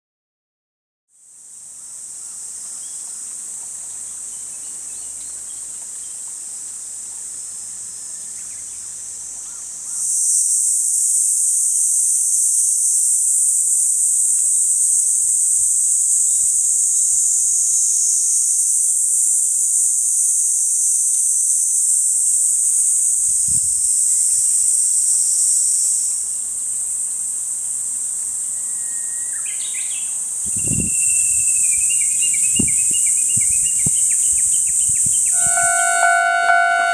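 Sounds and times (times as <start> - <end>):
insects chorus: 1.2 - 36.9
bird chirping: 29.4 - 36.9.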